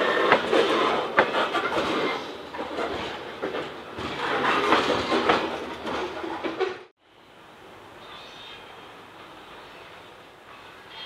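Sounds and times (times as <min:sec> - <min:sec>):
train wheels rumbling on rails: 0:00.0 - 0:06.9.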